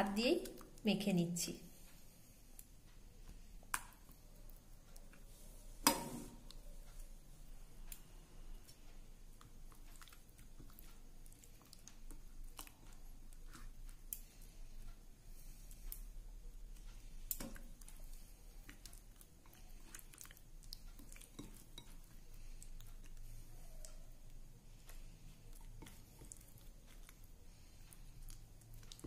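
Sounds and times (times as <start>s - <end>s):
wet squelching of hand mixing: 8.8s - 29.0s.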